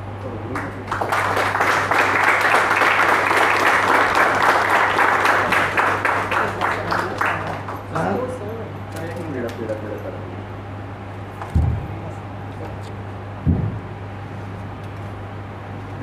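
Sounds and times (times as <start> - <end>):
people clapping: 0.2 - 8.4.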